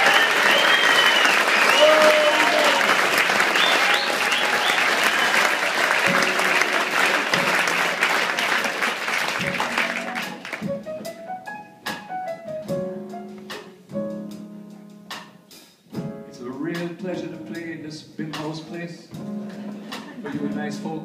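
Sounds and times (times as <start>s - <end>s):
audience applause: 0.0s - 10.7s
quiet piano notes and chords: 9.4s - 21.0s.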